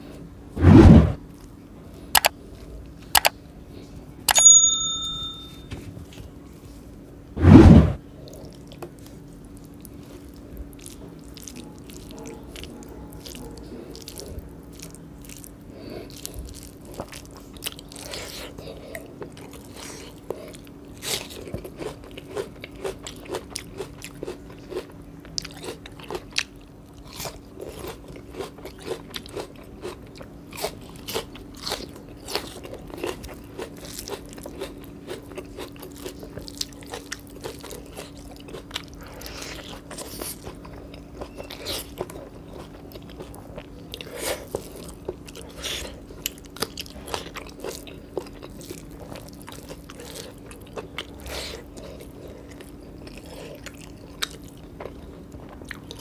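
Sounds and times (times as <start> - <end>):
faint steady hum: 0.0 - 56.0
pinging chime: 4.3 - 5.7
person crunching and chewing food: 8.0 - 56.0.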